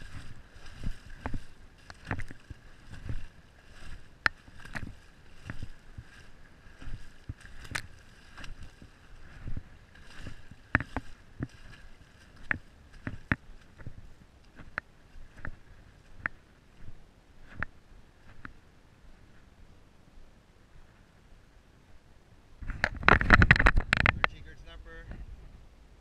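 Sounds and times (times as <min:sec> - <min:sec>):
water sloshing: 0:00.0 - 0:18.6
raindrops tapping on camera: 0:00.8 - 0:06.2, 0:10.2 - 0:14.0, 0:22.7 - 0:24.4.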